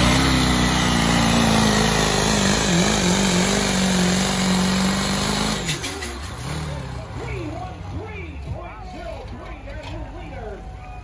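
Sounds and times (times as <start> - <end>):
diesel truck engine at high revs: 0.0 - 8.6.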